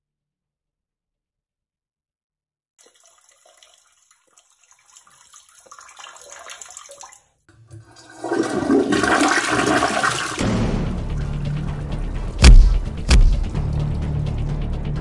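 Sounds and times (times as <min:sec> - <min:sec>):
toilet flushing: 0:02.8 - 0:12.1.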